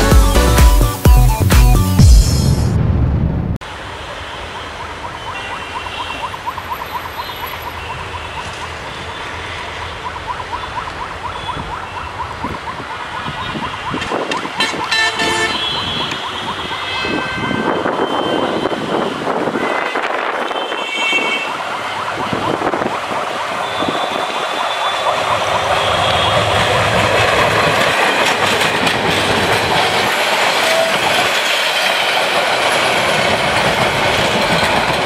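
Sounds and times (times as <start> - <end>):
train horn: 14.6 - 21.6.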